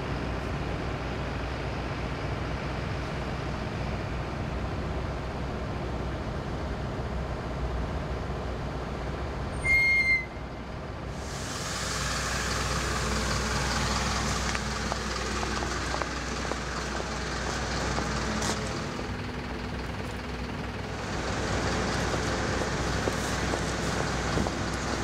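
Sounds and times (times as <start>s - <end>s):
low engine hum: 0.0s - 25.0s
short electronic beep: 9.6s - 10.4s
pneumatic air hiss: 11.2s - 13.0s.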